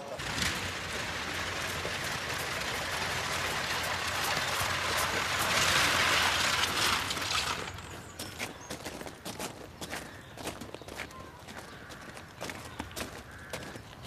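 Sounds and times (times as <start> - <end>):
carriage wheels crunching on gravel: 0.0 - 14.0.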